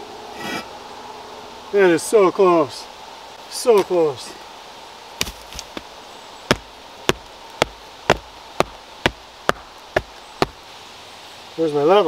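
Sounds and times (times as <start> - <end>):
tapping on concrete block: 6.5 - 10.6.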